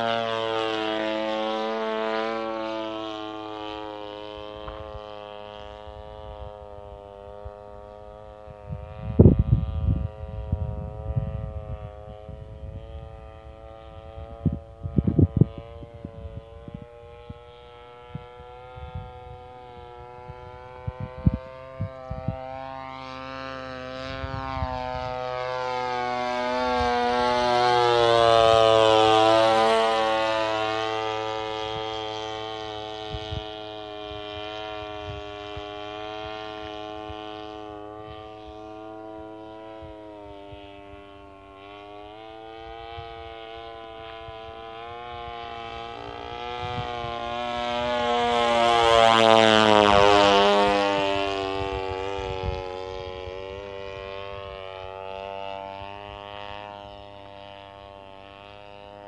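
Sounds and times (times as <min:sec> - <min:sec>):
model airplane engine buzzing: 0:00.0 - 0:59.0.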